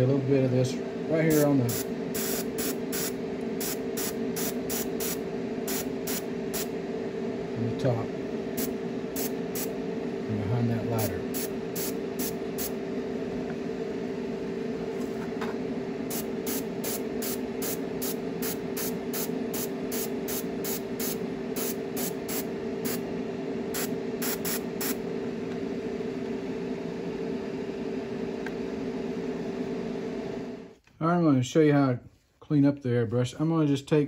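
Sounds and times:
steady hum: 0.0 - 32.0
airbrush hissing bursts: 1.2 - 6.7, 8.6 - 9.8, 11.0 - 12.8, 16.1 - 23.0, 23.7 - 25.0.

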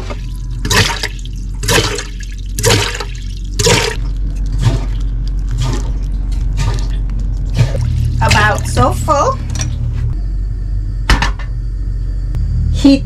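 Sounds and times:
water gushing into kettle: 0.0 - 5.9
steady low hum: 0.0 - 13.0
foot pump strokes: 0.6 - 8.6.

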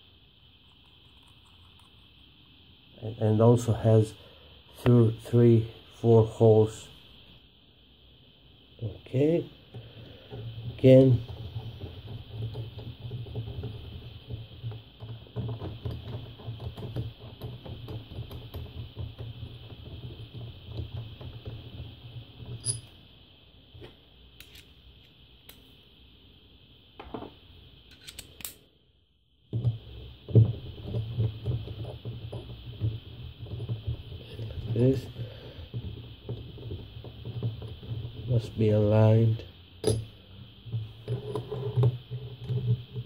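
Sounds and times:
metal parts clicking and clinking: 24.4 - 24.7, 27.9 - 28.6.

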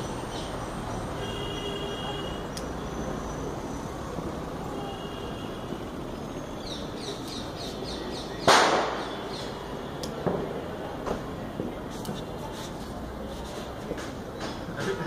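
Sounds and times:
steady background noise: 0.0 - 15.0
birds chirping: 6.1 - 9.7.

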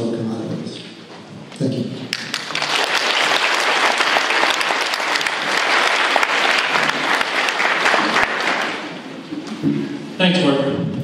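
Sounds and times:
audience applauding: 2.1 - 9.1.

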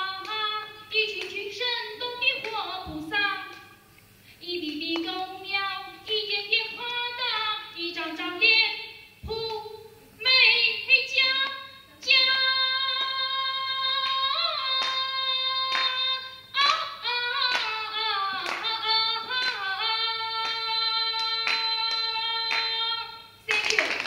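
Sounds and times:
woman singing into a microphone: 0.0 - 3.7, 4.4 - 23.9
sharp claps: 1.1 - 1.4, 14.0 - 15.1, 15.7 - 16.0, 17.4 - 17.8, 18.4 - 19.7, 20.3 - 22.8, 23.5 - 24.0.

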